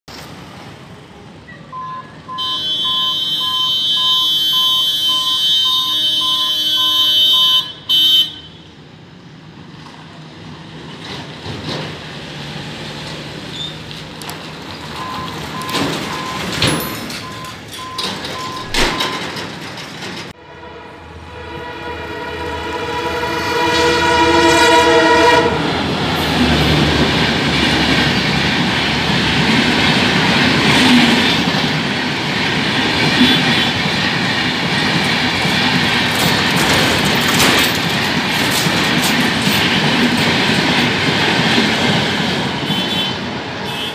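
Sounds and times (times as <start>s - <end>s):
train horn: 2.4s - 8.6s, 20.4s - 26.3s, 42.7s - 43.9s
train rushing past: 8.8s - 43.8s.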